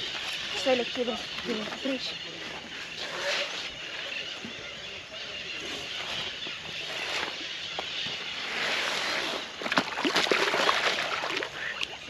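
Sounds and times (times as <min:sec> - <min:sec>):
fish splashing in water: 0:09.2 - 0:12.0.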